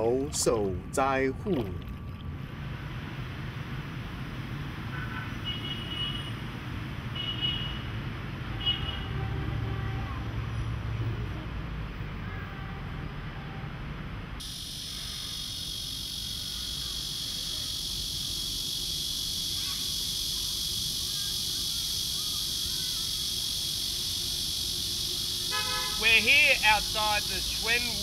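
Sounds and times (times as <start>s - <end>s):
low traffic rumble: 0.0s - 28.0s
faint chirps: 14.4s - 25.4s
high-pitched insect chorus: 14.4s - 28.0s.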